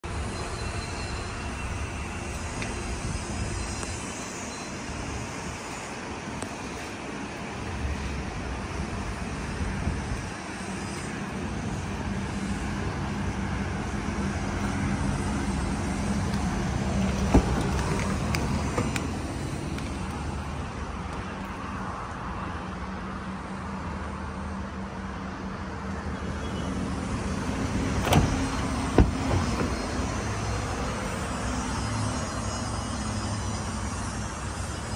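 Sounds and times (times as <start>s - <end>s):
low vehicle rumble with hum: 6.4s - 22.2s, 25.3s - 34.9s.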